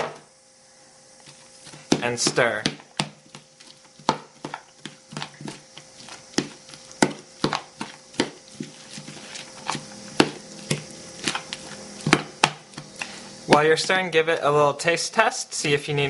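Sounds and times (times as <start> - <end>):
spoon scraping bowl: 3.6 - 13.2.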